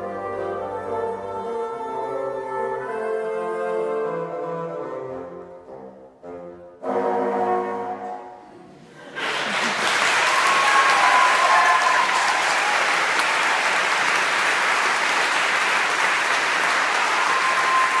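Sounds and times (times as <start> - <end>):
audience applause: 9.0 - 18.0.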